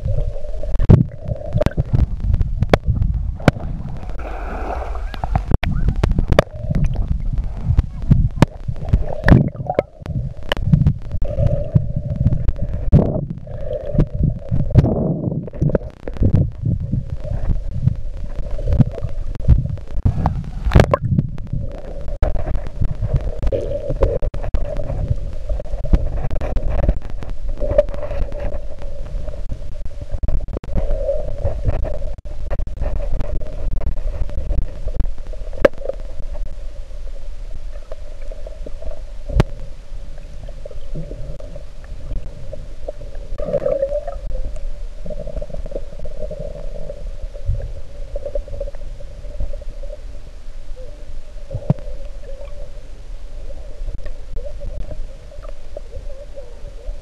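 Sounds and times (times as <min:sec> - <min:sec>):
underwater rumbling and sloshing: 0:00.0 - 0:57.0.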